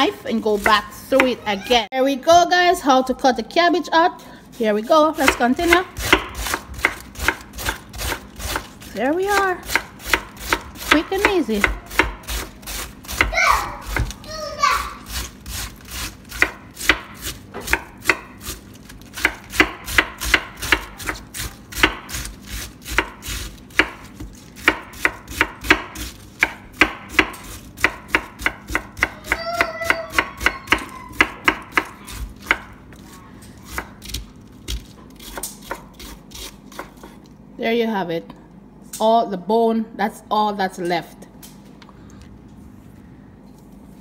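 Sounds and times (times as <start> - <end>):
knife chopping cabbage on board: 4.6 - 14.2, 15.0 - 37.2.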